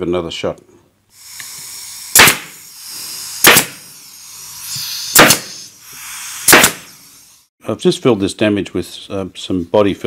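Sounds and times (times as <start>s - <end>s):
air hiss: 1.1s - 7.5s
pneumatic stapler firing: 1.3s - 4.0s, 4.6s - 7.1s.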